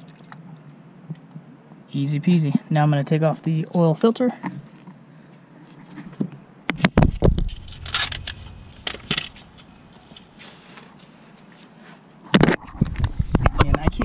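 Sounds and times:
sharp knocks: 6.8 - 10.4.

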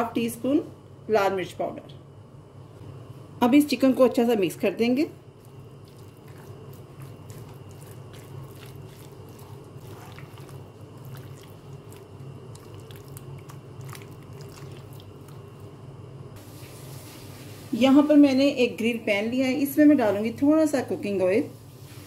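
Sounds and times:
steady low hum: 0.0 - 21.0
wet squishing of marinated chicken: 5.4 - 15.6.

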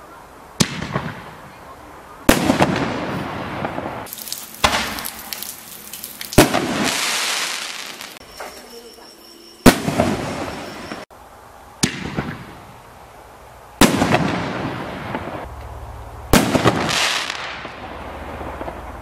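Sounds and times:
crackling firework stars: 0.5 - 9.0, 9.6 - 11.1, 16.3 - 19.0
firework shells bursting: 4.0 - 8.3.

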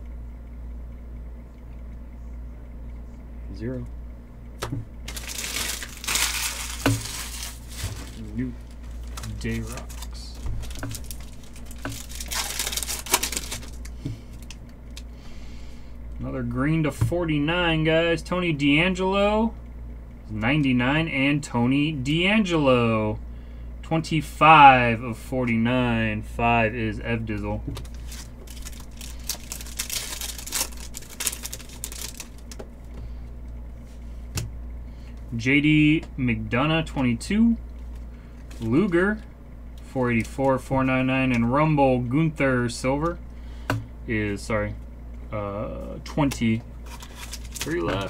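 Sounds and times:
low steady hum: 0.0 - 48.0
card pack wrapper crinkling: 5.0 - 15.1, 27.8 - 32.6, 46.8 - 48.0.

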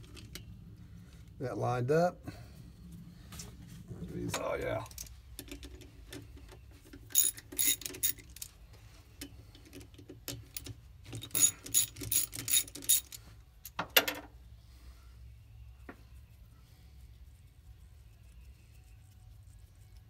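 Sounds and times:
socket ratchet clicking: 7.1 - 8.4, 10.3 - 13.2.

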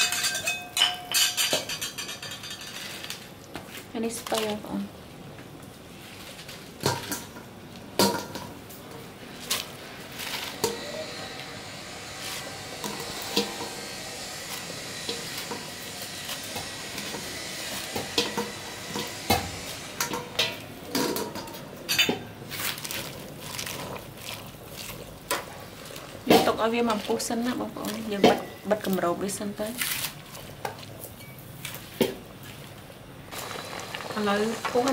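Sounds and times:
metal utensil scraping pan: 0.0 - 3.2, 10.4 - 23.1
food sizzling in oil: 10.3 - 32.0, 33.3 - 34.9.

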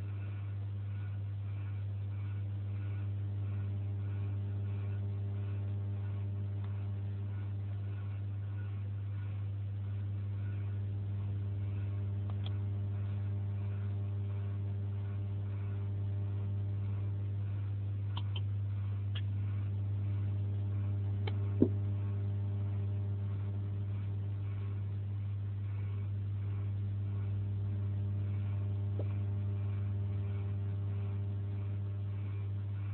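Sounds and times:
low electrical hum: 0.0 - 32.9
faint clicks: 12.2 - 13.1, 18.1 - 18.5.

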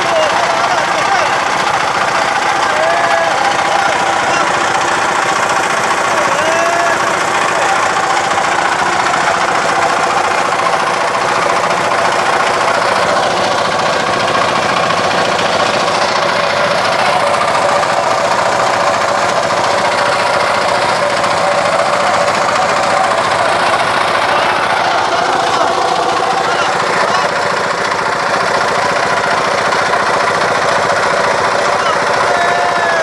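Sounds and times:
motorboat engine running: 0.0 - 33.0.

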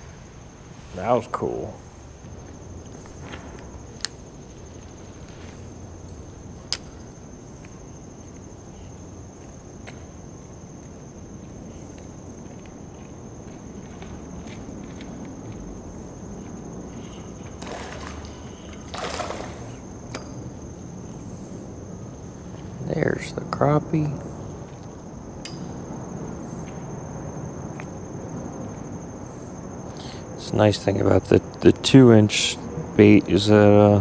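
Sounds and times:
low outdoor rumble: 0.0 - 34.0
insect buzzing: 1.8 - 23.3.

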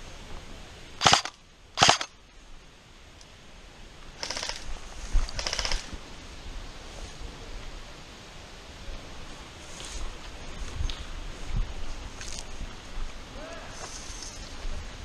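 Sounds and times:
airsoft rifles firing bursts: 1.0 - 2.1, 4.2 - 4.7, 5.3 - 5.9.

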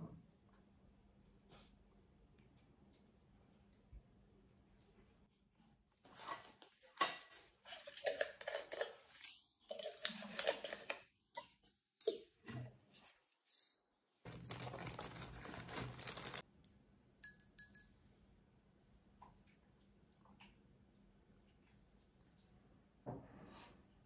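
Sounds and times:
rustling: 14.2 - 16.4
glass clinks: 17.2 - 18.0.

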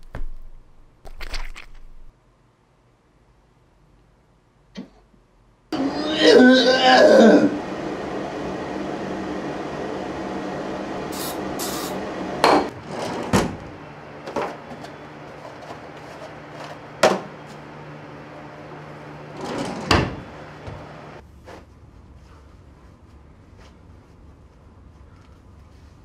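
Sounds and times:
kitchen drawer knocking and clattering: 19.4 - 20.3.

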